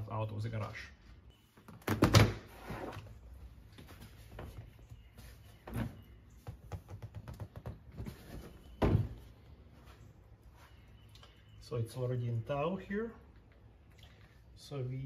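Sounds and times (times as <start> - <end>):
seat knocks and rattles: 5.7 - 9.2.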